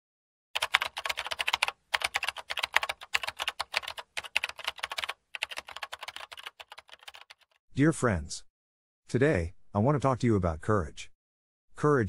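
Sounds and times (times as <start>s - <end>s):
computer keyboard typing: 0.6s - 7.6s.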